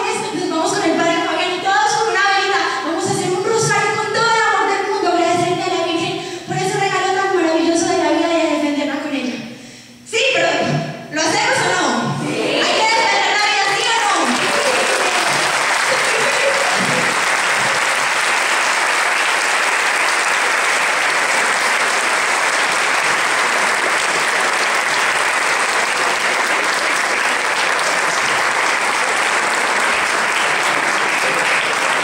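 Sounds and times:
audience applauding: 0:13.8 - 0:32.0.

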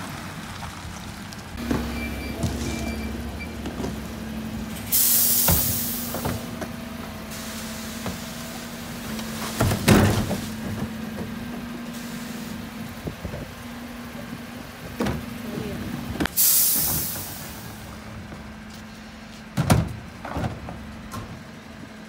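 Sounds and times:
truck engine humming: 0:00.0 - 0:22.0
loud air hiss: 0:04.8 - 0:06.4, 0:07.2 - 0:08.9, 0:16.3 - 0:17.9
bin knocking and banging: 0:09.6 - 0:10.9, 0:19.6 - 0:20.8.

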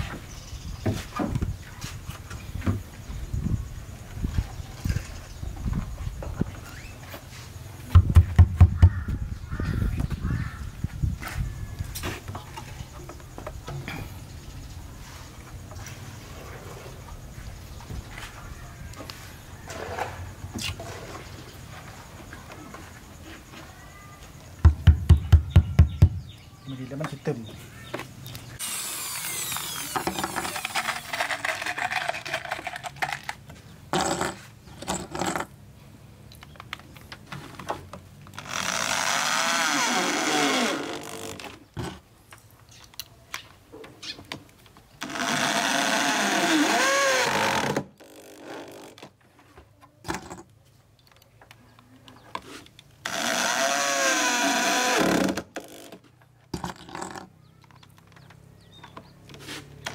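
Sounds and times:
drill driving screws: 0:28.6 - 0:31.4, 0:38.4 - 0:41.4, 0:53.0 - 0:55.4.

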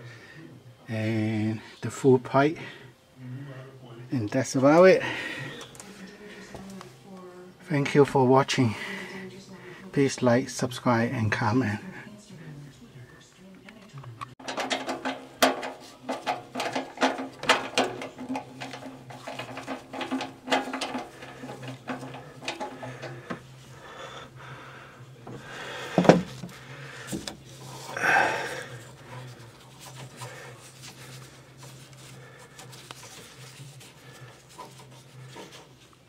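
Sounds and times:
screwdriver clicks and knocks on metal: 0:14.4 - 0:23.4
steady low hum: 0:14.4 - 0:36.0.

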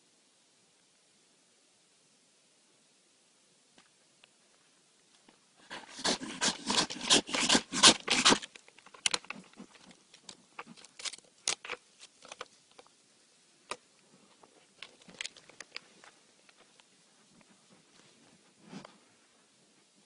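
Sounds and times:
claws scratching on tree bark: 0:05.7 - 0:08.6.

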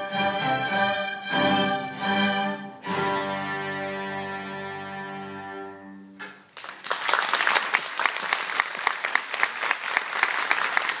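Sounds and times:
string ensemble chord: 0:00.0 - 0:06.2
audience applauding: 0:06.5 - 0:11.0.

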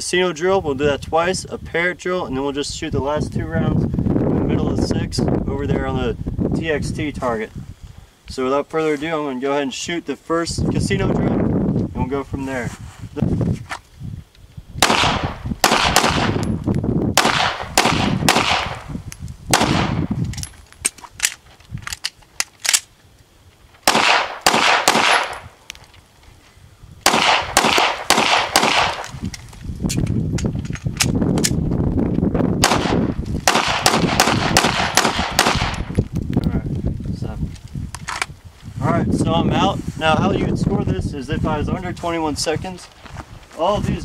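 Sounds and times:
pistol shots in quick strings: 0:14.8 - 0:16.4, 0:17.2 - 0:18.8, 0:23.8 - 0:25.4, 0:27.0 - 0:29.1, 0:32.6 - 0:35.8.

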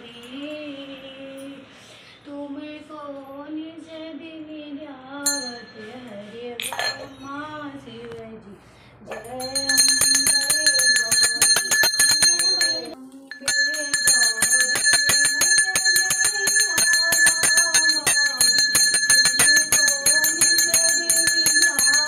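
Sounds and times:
woman singing: 0:00.0 - 0:11.2, 0:12.9 - 0:22.0
hand bell ringing rapidly: 0:05.3 - 0:05.8, 0:09.1 - 0:22.0.

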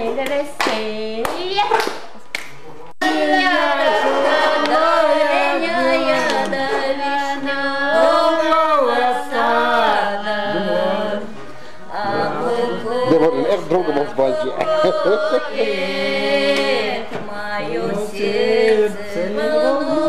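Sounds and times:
woman singing: 0:03.0 - 0:11.3
people singing together: 0:03.0 - 0:20.0.

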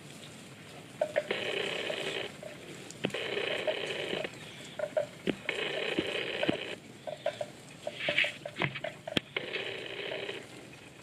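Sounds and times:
buffalo tearing grass: 0:01.0 - 0:06.8
buzzing bursts: 0:01.0 - 0:07.4, 0:09.1 - 0:10.5.

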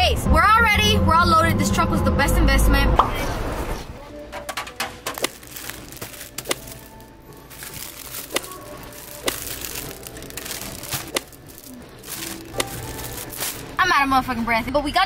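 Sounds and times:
faint background music: 0:00.0 - 0:15.0
plastic wrapper crinkling: 0:04.8 - 0:13.8.

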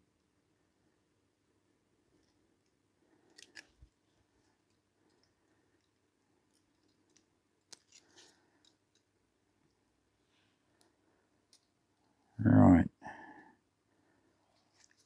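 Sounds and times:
small metal clicks of clock parts: 0:02.2 - 0:03.9, 0:04.5 - 0:09.8, 0:10.8 - 0:11.8.

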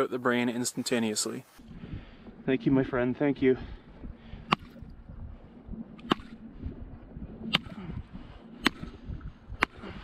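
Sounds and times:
wooden club striking fish: 0:04.5 - 0:04.8, 0:06.0 - 0:06.4, 0:07.5 - 0:07.8, 0:08.6 - 0:08.9, 0:09.6 - 0:09.8.

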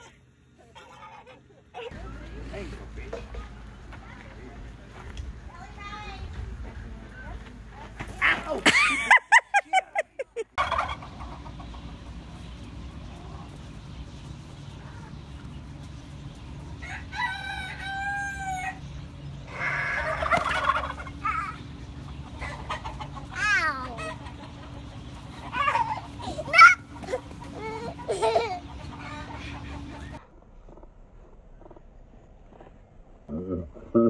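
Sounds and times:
fowl clucking: 0:10.6 - 0:12.1, 0:19.5 - 0:30.9
rooster crowing: 0:16.8 - 0:18.8.

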